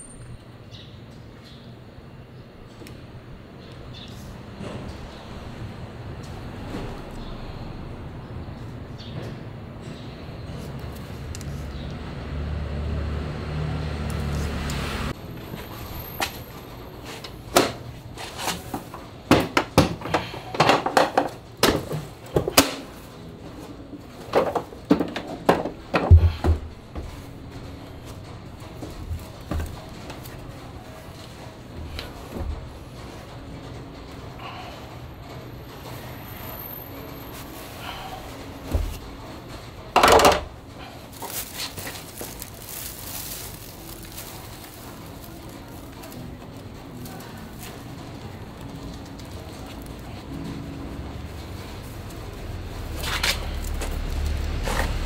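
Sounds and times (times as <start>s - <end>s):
dust bag crumpling rustle: 41.1s - 47.8s.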